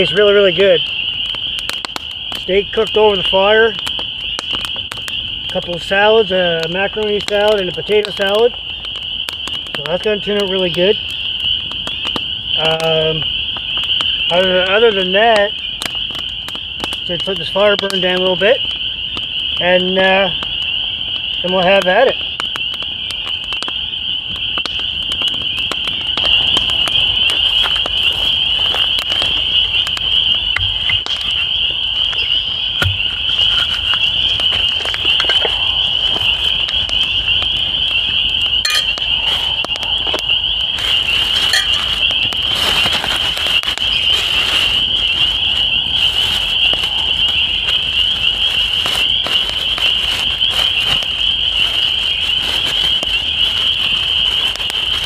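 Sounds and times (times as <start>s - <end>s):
campfire crackling: 0.0s - 55.0s
frogs calling in chorus: 0.0s - 55.0s
plastic wrapping rustling: 25.8s - 37.8s, 38.6s - 55.0s.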